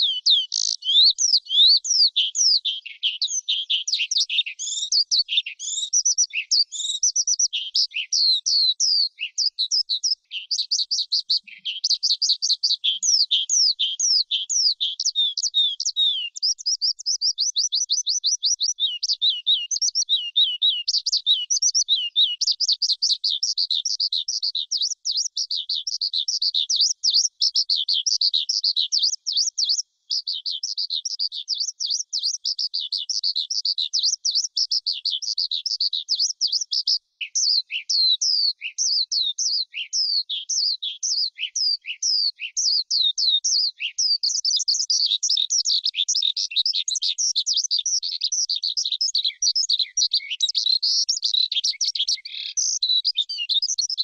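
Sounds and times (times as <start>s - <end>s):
skylark singing: 0.0s - 54.0s.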